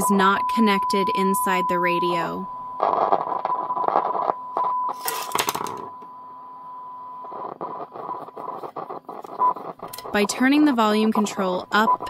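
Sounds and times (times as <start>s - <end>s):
steady test tone: 0.0s - 12.0s
scratchy crackles: 2.8s - 5.8s, 7.2s - 12.0s.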